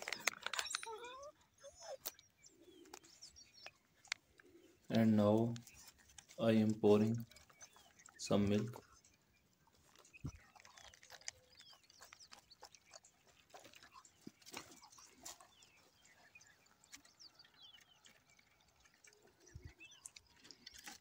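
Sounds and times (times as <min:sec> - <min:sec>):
dogs lapping: 0:07.2 - 0:21.0.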